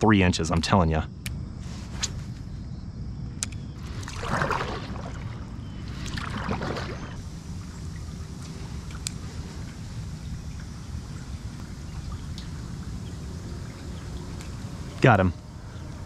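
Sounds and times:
low steady rumble: 0.0s - 16.0s
paddle splashing through water: 3.8s - 7.2s.

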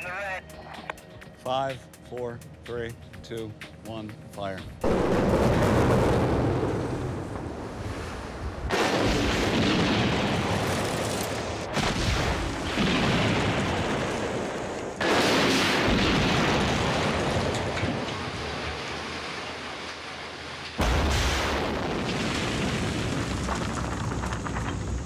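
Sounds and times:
loud explosive blasts: 4.8s - 19.6s, 20.8s - 25.0s.

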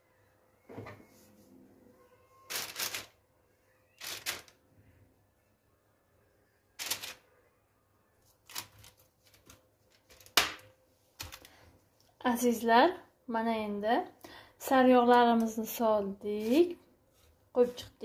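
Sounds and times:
baking paper crinkling: 2.5s - 3.2s, 4.0s - 4.6s, 6.8s - 7.2s, 8.2s - 10.6s, 16.3s - 16.8s.

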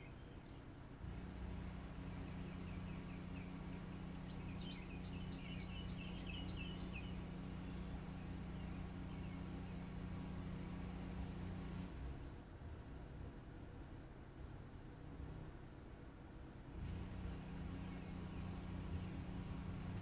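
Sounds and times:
small birds chirping: 0.0s - 12.6s, 16.8s - 20.0s
charger humming: 1.0s - 12.4s, 16.7s - 20.0s.

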